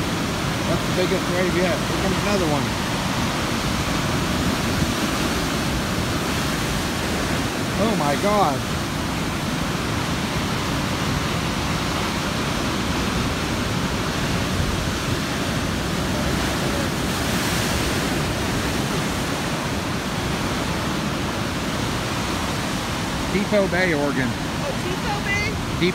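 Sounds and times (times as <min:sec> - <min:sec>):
heavy surf on rocks: 0:00.0 - 0:25.9.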